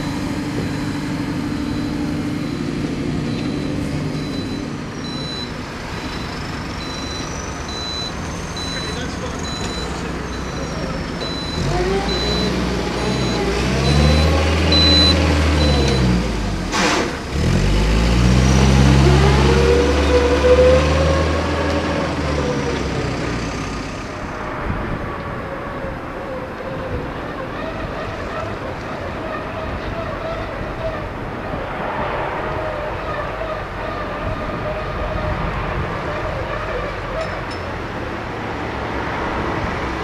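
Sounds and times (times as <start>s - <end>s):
reversing alarm beeping: 0.0s - 16.2s
dumper engine running: 0.0s - 24.4s
cars driving past: 0.0s - 40.0s.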